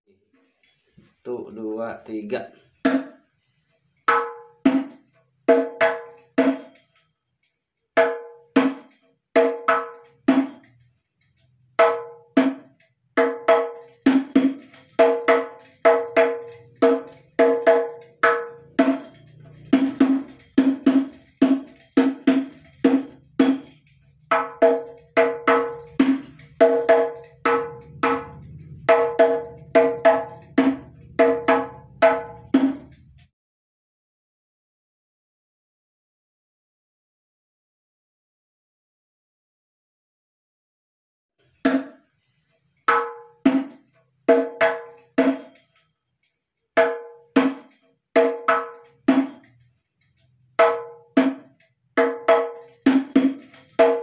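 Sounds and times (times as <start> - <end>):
hand-played frame drums: 2.7 - 3.3, 4.1 - 6.8, 8.0 - 10.9, 11.8 - 33.3, 42.9 - 45.7, 46.8 - 54.0.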